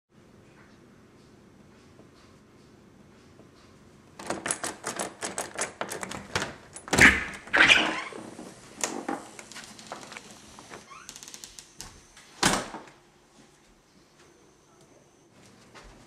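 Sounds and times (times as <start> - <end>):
door knob and latch rattling: 4.2 - 7.5.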